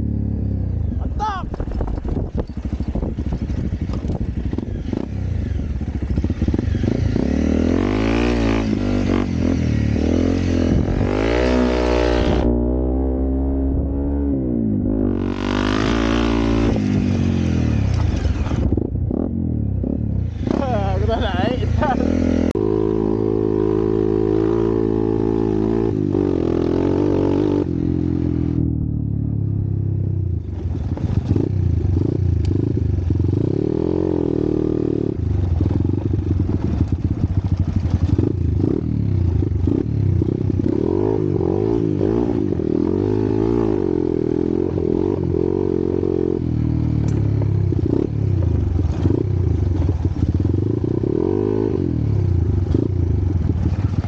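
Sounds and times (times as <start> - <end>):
motorcycle engine revving: 0.0 - 54.0
bike rattling over bumps: 1.5 - 7.2, 30.4 - 32.1, 35.3 - 40.4.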